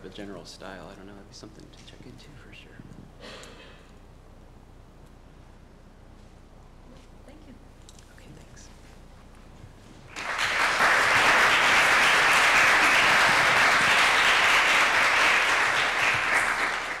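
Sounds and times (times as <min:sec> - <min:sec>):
audience applauding: 0:10.1 - 0:17.0.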